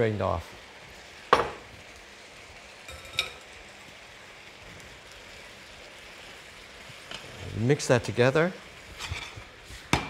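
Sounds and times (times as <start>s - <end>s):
vegetables and beef sizzling in wok: 0.0s - 10.0s.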